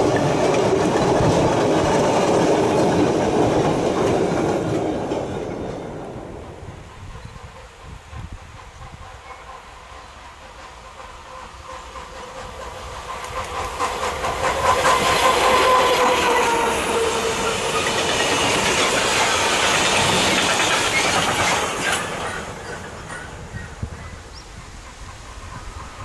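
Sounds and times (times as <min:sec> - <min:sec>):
wagon wheels clattering over rail joints: 0:00.0 - 0:05.8
electric locomotive humming: 0:00.0 - 0:26.0.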